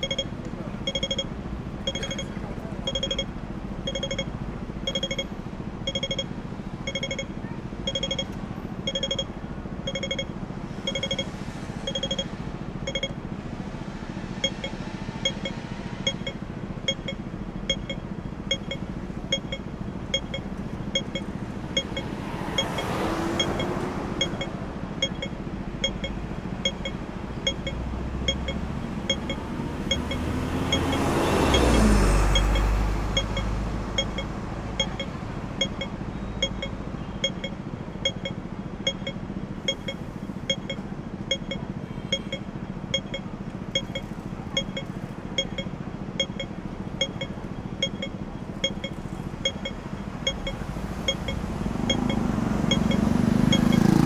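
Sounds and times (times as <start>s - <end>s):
crossing signal beeping: 0.0s - 13.3s, 14.3s - 54.0s
street traffic: 0.0s - 54.0s
vehicle passing with deep rumble: 0.0s - 54.0s.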